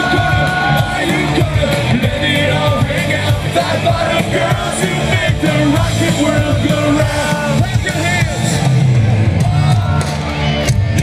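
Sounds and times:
lead singer singing: 0.0s - 8.6s
live rock band playing: 0.0s - 11.0s.

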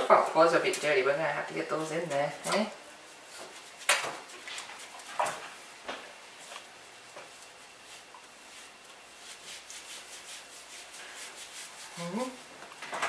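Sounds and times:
rubbing wet dog fur: 6.4s - 12.5s.

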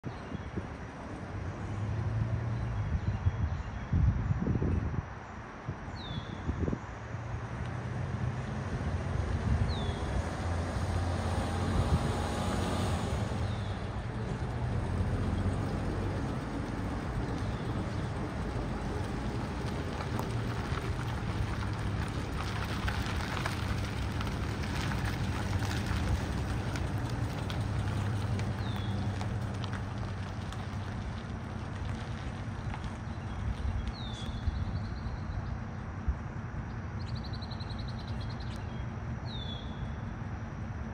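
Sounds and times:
truck engine humming: 7.3s - 36.6s
bird chirping: 36.7s - 40.0s.

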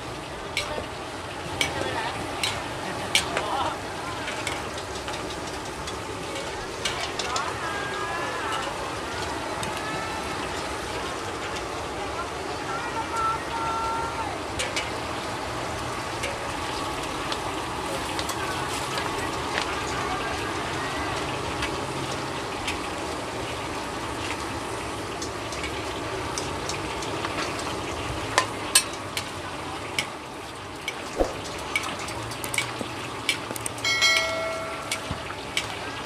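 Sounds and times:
food sizzling in a wok: 0.0s - 36.0s
sharp knocks: 31.2s - 31.6s.

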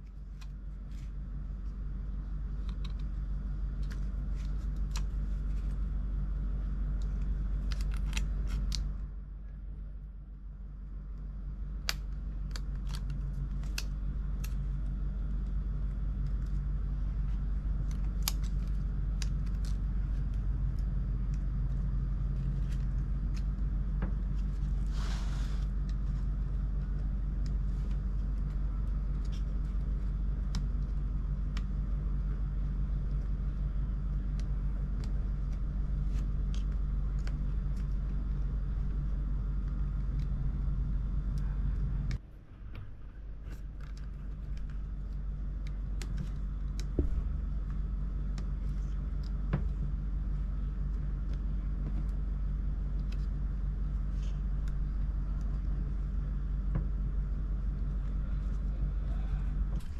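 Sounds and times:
steady low hum: 0.0s - 59.9s
small tools clicking on laptop parts: 6.9s - 9.0s, 17.3s - 24.6s
scraping rustle: 24.3s - 27.0s.

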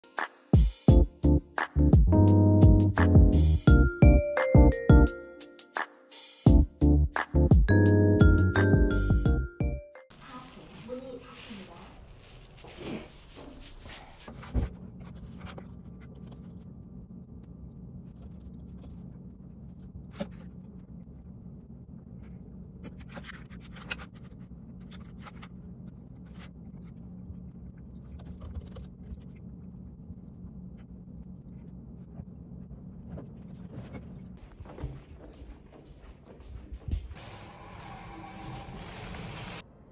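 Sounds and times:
paper wrapper rustling: 10.1s - 14.4s
low room hum: 10.1s - 39.9s.

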